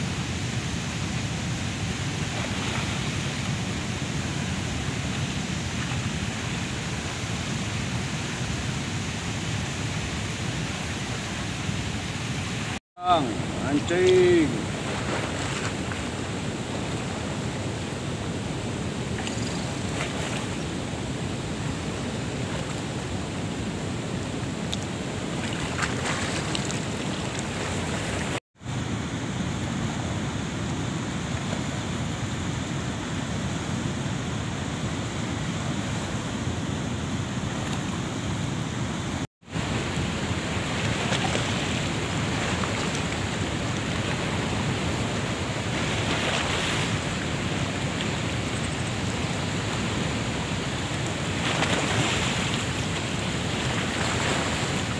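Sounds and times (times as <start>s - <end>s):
fast-flowing river water: 0.0s - 54.9s.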